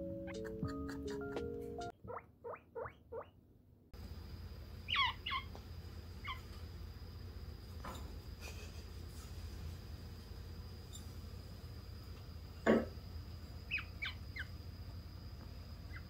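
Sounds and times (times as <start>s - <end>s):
guinea pig squeaking: 0.2s - 3.4s, 4.9s - 5.5s, 6.2s - 6.5s, 13.7s - 14.6s.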